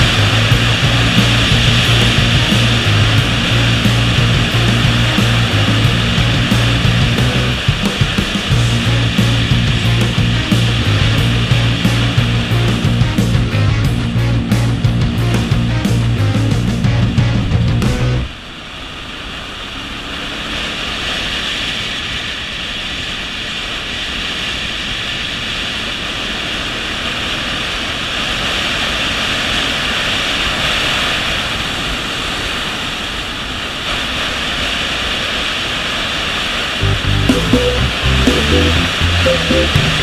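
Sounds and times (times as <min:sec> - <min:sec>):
rock music: 0:00.0 - 0:18.3, 0:36.8 - 0:40.0
wind rushing over microphone: 0:00.0 - 0:18.3
road noise: 0:00.0 - 0:34.2, 0:35.8 - 0:40.0.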